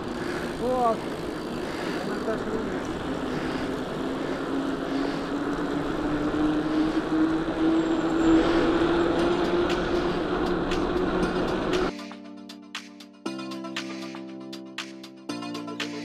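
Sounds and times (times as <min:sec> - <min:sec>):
vehicle hum rising in pitch: 0:02.8 - 0:11.9.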